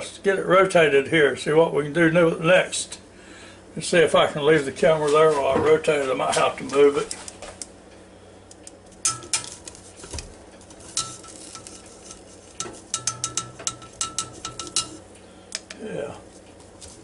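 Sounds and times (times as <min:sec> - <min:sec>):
metal tongs clicking on basket: 0:10.6 - 0:15.8.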